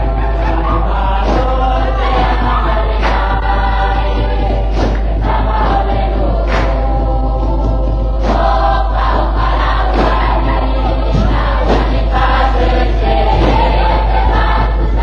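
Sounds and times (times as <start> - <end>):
choir singing: 0.0 - 15.0.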